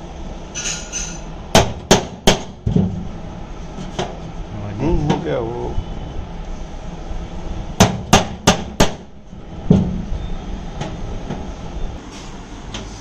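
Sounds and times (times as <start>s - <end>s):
hammer striking punch on metal: 1.5s - 2.9s, 7.8s - 9.1s.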